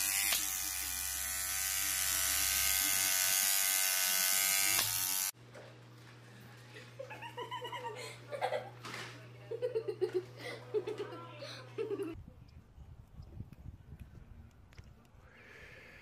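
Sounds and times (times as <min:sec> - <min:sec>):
small electric motor buzzing: 0:00.0 - 0:05.4.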